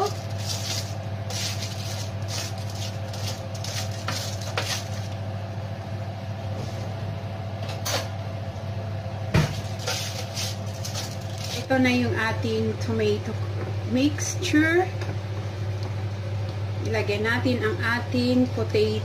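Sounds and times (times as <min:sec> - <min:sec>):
wooden spatula scraping baking tray: 0:00.0 - 0:05.1, 0:09.8 - 0:11.7
steady low hum: 0:00.0 - 0:19.0.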